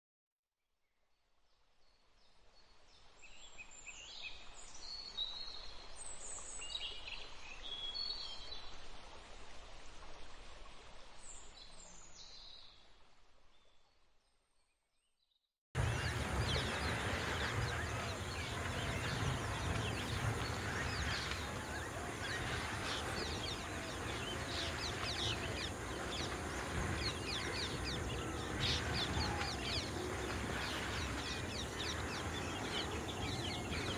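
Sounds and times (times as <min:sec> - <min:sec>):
dense chorus of rapid chirps: 0:15.8 - 0:33.9
high bird calls: 0:15.8 - 0:33.9
steady low rumble: 0:15.8 - 0:33.9.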